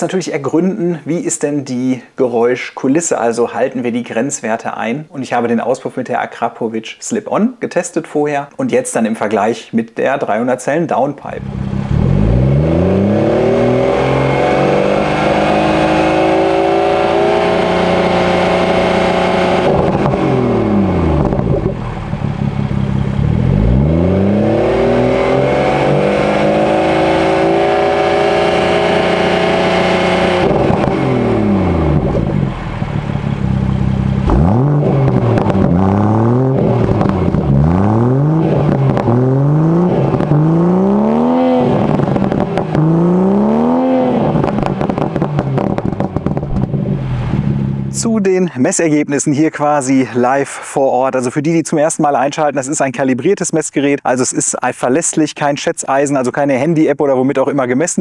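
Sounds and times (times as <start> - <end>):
car engine revving: 11.2 - 48.1.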